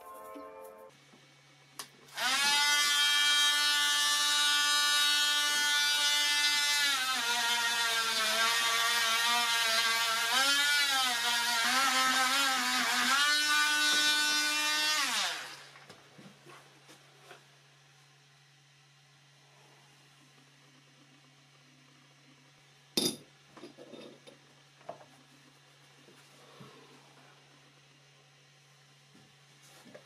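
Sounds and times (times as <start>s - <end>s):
electric power tool whining: 2.1s - 15.9s.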